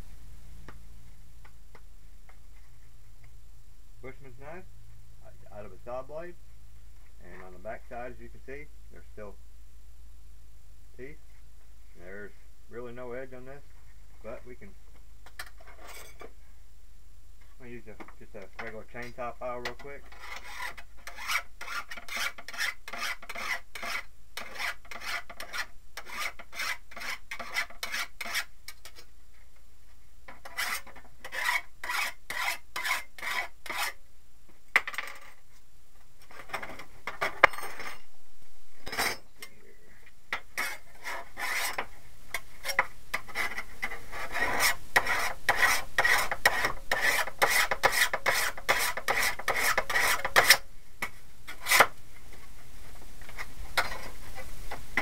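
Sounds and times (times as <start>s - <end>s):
file rasping on saw blade: 20.1s - 28.5s, 30.4s - 34.0s, 40.6s - 41.8s, 42.6s - 50.6s.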